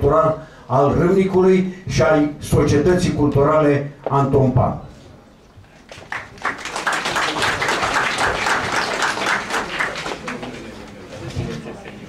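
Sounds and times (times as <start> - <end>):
audience applauding: 5.9 - 11.0.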